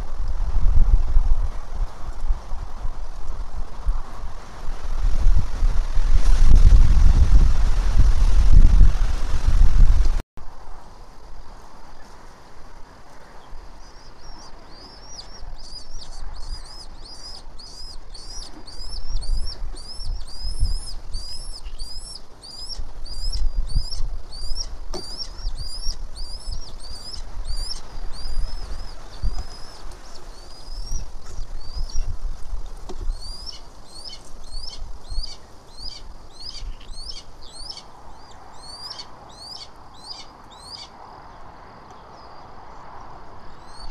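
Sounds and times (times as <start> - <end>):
hawk chick peeping: 13.8 - 32.1, 32.9 - 40.9.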